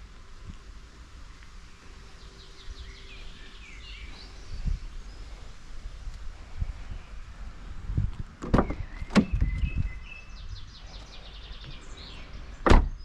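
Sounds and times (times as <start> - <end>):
car door latch clicks: 8.4 - 9.4, 12.6 - 12.9
car door thump: 8.4 - 9.5, 12.6 - 13.0.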